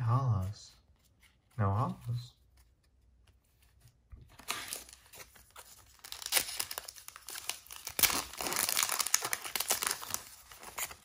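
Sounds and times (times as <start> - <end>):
foil pack crinkling and tearing: 4.4 - 11.0.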